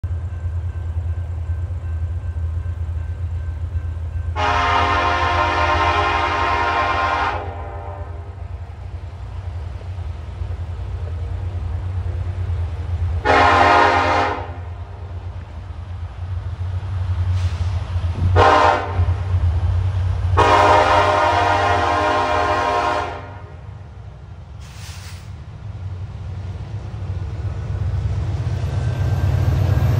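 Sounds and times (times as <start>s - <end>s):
train engines rumbling: 0.0s - 29.9s
locomotive air horn blasts: 4.3s - 8.6s, 13.2s - 15.0s, 17.4s - 19.2s, 20.3s - 23.7s.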